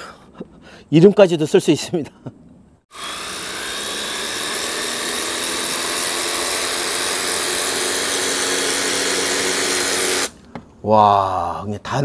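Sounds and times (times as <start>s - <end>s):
pressure washer pump humming: 2.9s - 10.4s.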